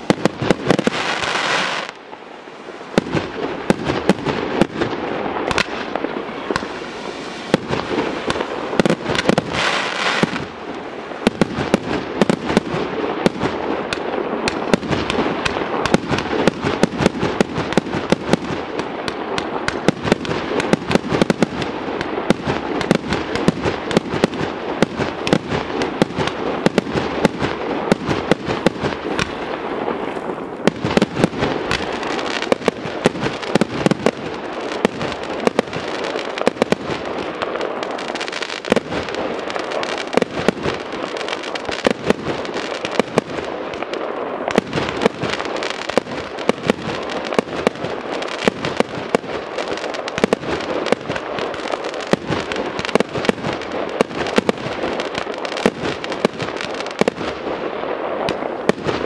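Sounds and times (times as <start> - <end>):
fireworks crackling: 0.0 - 59.0
fireworks hissing: 0.0 - 59.0
firework shells bursting: 2.9 - 10.6.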